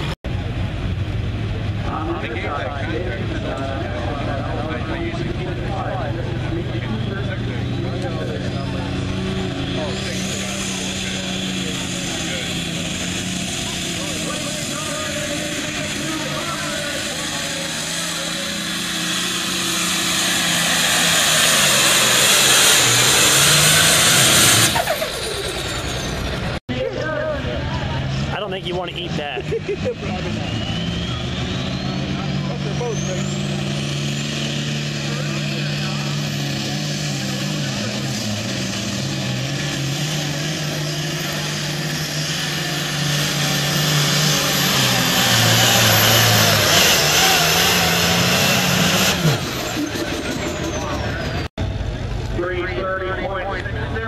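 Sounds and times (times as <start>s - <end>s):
tractor diesel engine at full load: 0.0s - 54.0s.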